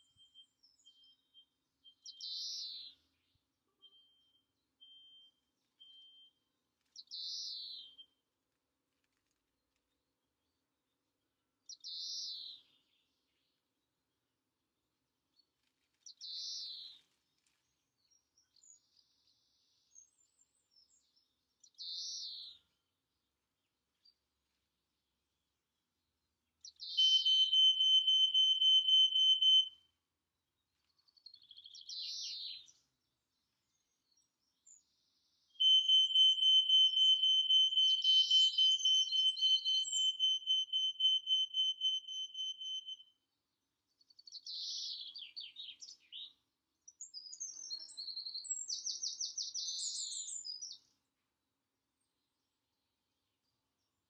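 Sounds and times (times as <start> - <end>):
birds singing: 0.0 - 6.3, 7.0 - 8.0, 26.6 - 29.7, 31.2 - 32.8, 33.7 - 43.0, 44.1 - 50.9
high pulsed bird trill: 26.8 - 29.7, 35.6 - 43.0.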